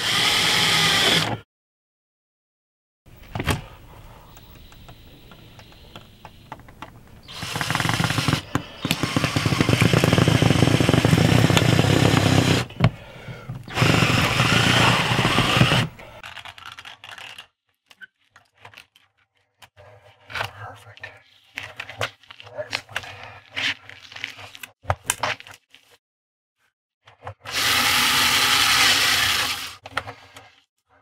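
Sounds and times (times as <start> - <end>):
cordless drill drilling: 0.0 - 1.4, 7.2 - 12.8, 13.6 - 16.1, 27.5 - 29.8.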